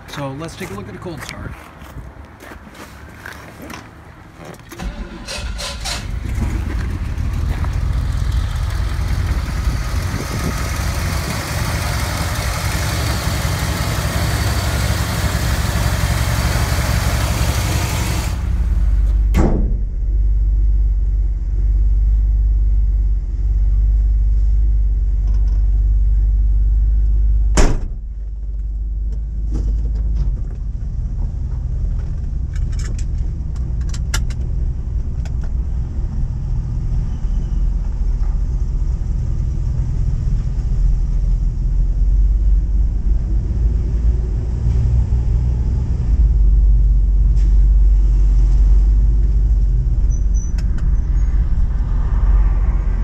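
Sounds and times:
engine idling: 4.8 - 27.5
car door slamming: 27.5 - 28.0.

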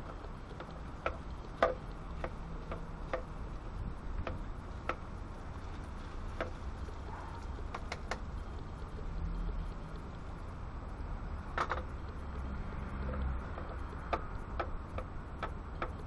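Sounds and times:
low rumble: 0.0 - 15.8.

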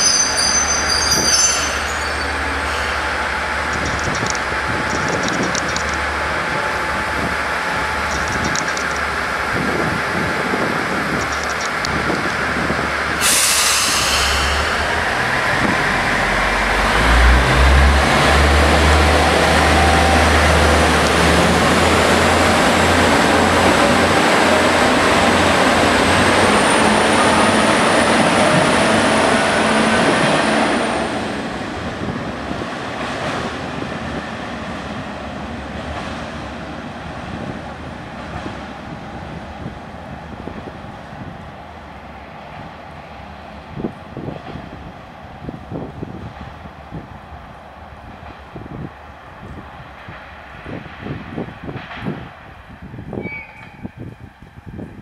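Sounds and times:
diesel engines rumbling: 0.0 - 41.9
brake air hiss: 13.2 - 15.0.

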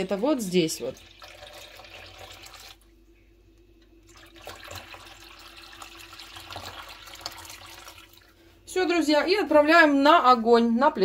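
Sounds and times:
water pouring into metal pot: 0.6 - 2.8, 4.1 - 8.4.

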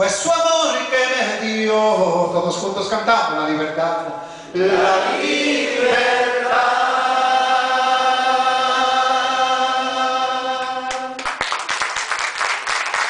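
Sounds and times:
man singing into a microphone: 0.0 - 2.6
audience singing along: 4.5 - 11.3
audience applause: 10.9 - 13.0.

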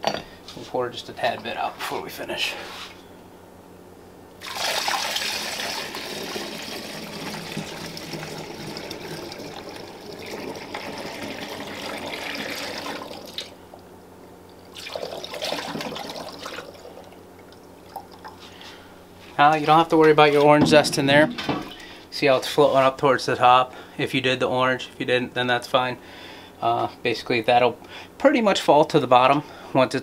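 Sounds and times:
liquid pouring into glass jug: 4.4 - 13.6, 14.7 - 18.5.

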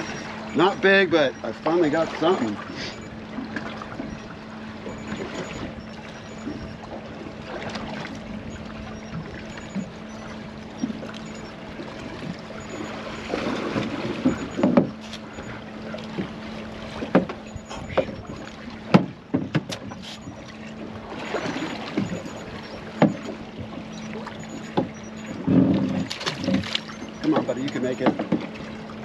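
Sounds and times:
steady low hum: 0.0 - 29.0
water sloshing against hull: 0.0 - 29.0
wind: 0.0 - 29.0
clicks and knocks of fishing rig: 13.8 - 20.4.

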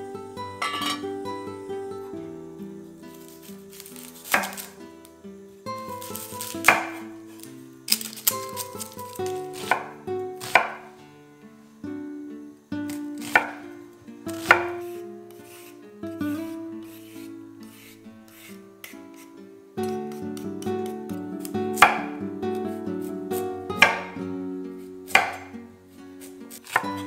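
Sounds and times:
knife chopping on wooden board: 4.2 - 4.7, 6.1 - 7.0, 9.3 - 10.9, 13.2 - 13.6, 14.4 - 14.9, 21.8 - 22.2, 23.8 - 24.2, 25.1 - 25.5, 26.5 - 27.0.

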